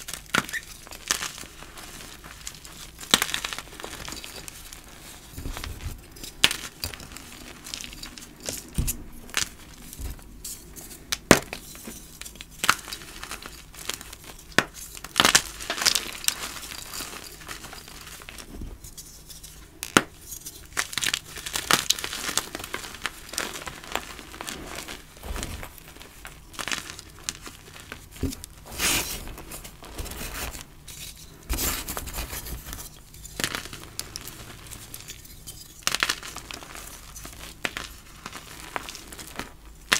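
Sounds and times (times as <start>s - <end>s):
chalk crunching and snapping: 0.0s - 39.9s
powdery chalk crumbling: 0.0s - 39.9s.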